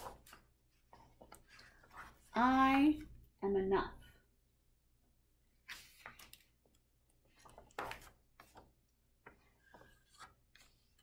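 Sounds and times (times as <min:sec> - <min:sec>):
paper pages rustling: 0:00.0 - 0:02.3, 0:05.6 - 0:11.0.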